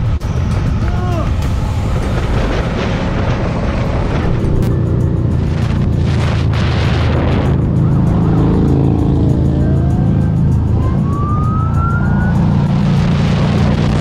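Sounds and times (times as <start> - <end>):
motorcycle engine running: 0.0 - 14.0
police siren: 7.4 - 14.0.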